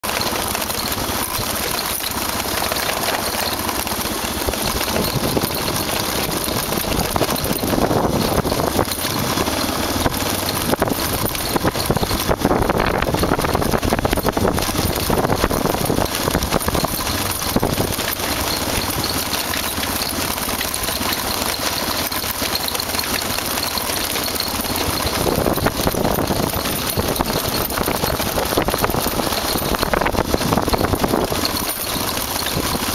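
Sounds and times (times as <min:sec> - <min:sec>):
motorcycle engine: 0:00.0 - 0:32.9
road and wind noise: 0:00.0 - 0:32.9.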